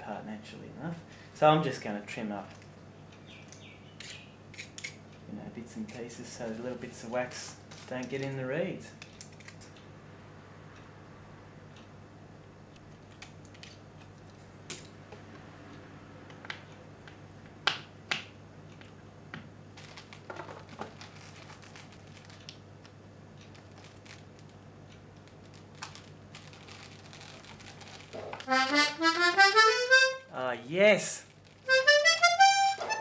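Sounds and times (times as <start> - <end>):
accordion case clicks and taps: 28.4 - 30.2, 31.7 - 33.0
accordion rising notes: 28.4 - 30.3, 31.7 - 33.0.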